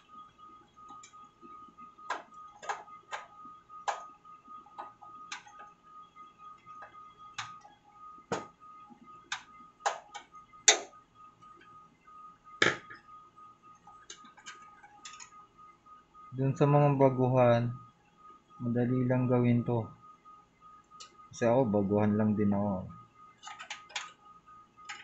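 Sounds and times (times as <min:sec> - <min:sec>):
faint high-pitched tone: 0:21.3 - 0:23.2.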